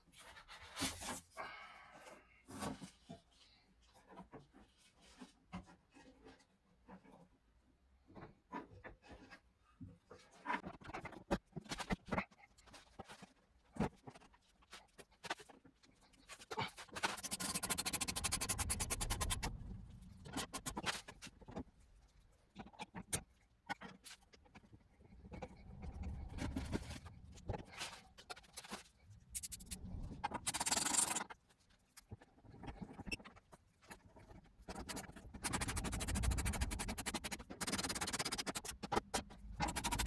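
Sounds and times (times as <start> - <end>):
rapid even clicking: 34.7 - 40.0.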